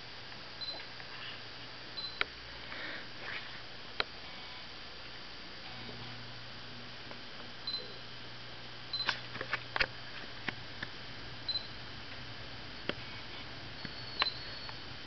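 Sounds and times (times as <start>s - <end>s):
steady low hum: 0.0s - 15.0s
faint high chirps: 13.7s - 15.0s.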